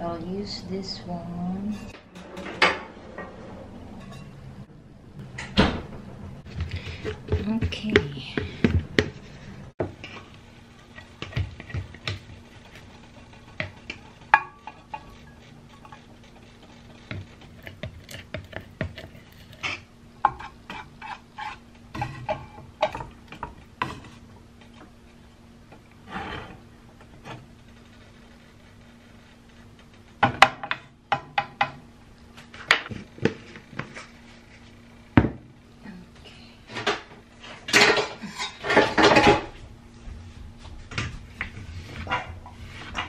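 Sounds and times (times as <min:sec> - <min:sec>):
spoon scraping frying pan: 0:04.0 - 0:04.4, 0:10.0 - 0:24.3.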